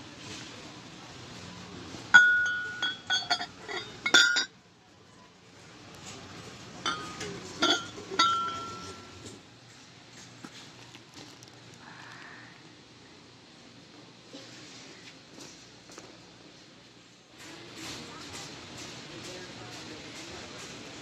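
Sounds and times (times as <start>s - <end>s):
ceramic mugs clinking: 2.1s - 4.6s, 6.8s - 9.2s.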